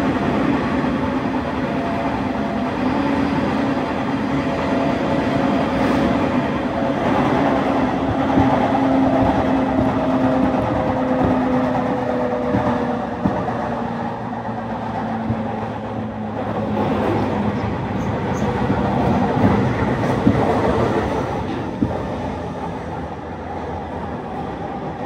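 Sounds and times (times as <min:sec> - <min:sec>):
train wheels rumbling on track: 0:00.0 - 0:25.0
rail-joint knocks: 0:17.5 - 0:22.0.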